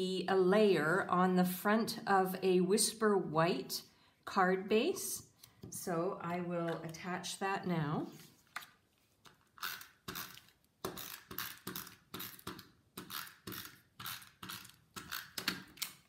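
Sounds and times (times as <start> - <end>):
tape runner ratcheting: 9.6 - 16.0.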